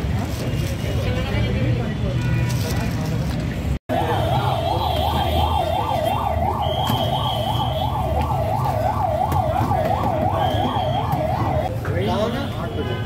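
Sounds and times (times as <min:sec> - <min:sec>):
electronic siren yelping: 0:03.9 - 0:11.7.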